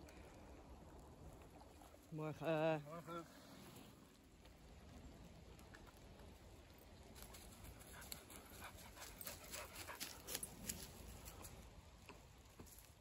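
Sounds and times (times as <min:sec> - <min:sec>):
dog panting: 0:07.8 - 0:10.5.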